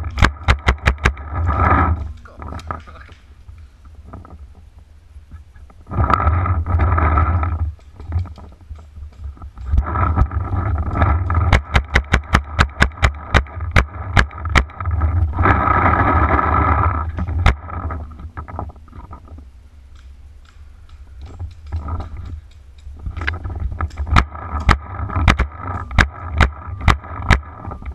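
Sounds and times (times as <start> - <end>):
branches scraping against camera: 0.0 - 27.9
heavy low rumble: 0.0 - 27.9.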